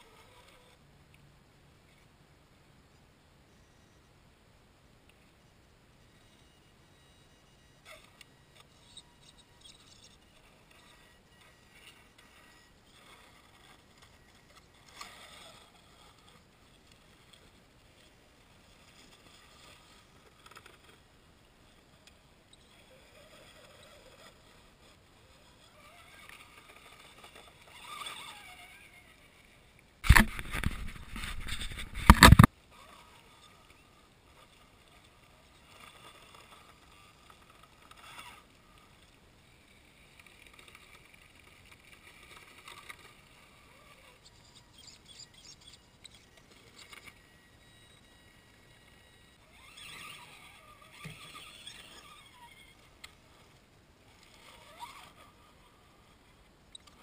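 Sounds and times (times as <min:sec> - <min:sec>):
tyres scraping on rock: 0:30.0 - 0:32.5
wind noise on microphone: 0:30.0 - 0:32.5.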